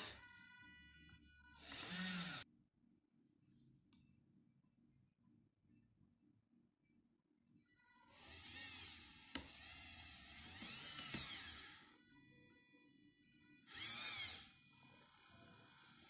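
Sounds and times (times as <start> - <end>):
small electric motor whining: 0.0 - 2.4, 7.9 - 16.0.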